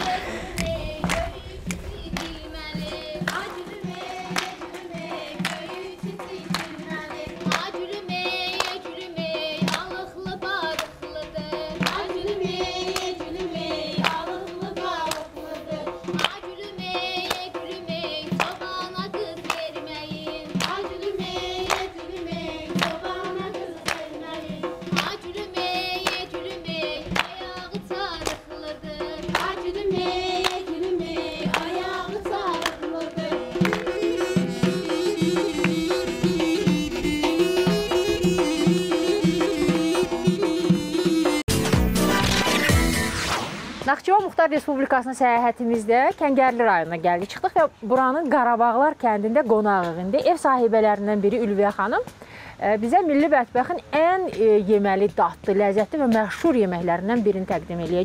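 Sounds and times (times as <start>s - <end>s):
hand claps: 0.0s - 7.8s, 8.5s - 8.9s, 9.6s - 10.0s, 10.7s - 11.0s, 11.8s - 12.1s, 12.9s - 13.2s, 14.0s - 14.2s, 15.0s - 15.4s, 16.1s - 16.4s, 17.2s - 17.5s, 18.3s - 19.8s, 20.6s - 20.9s, 21.6s - 21.9s, 22.7s - 25.2s, 26.0s - 26.3s, 27.1s - 27.4s, 28.2s - 28.5s, 29.3s - 30.6s, 31.4s - 32.8s, 33.6s - 36.1s
women singing folk song: 0.0s - 40.7s
frame drum beating: 0.0s - 42.9s.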